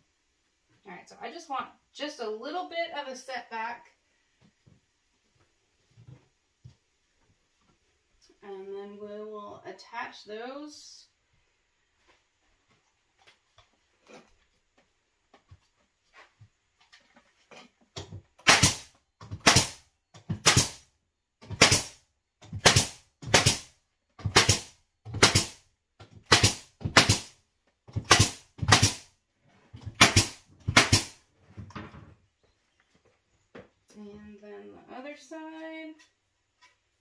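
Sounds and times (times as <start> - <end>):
pneumatic nail gun firing: 18.4 - 19.8, 20.4 - 20.8, 21.5 - 22.0, 22.6 - 23.7, 24.3 - 25.6, 26.3 - 27.4, 28.0 - 29.1, 30.0 - 31.2.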